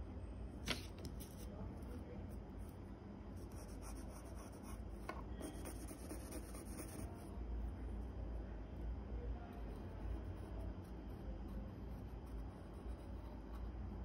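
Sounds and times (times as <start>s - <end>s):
pencil scratching on paper: 3.4s - 4.8s, 5.4s - 7.3s, 9.7s - 13.7s.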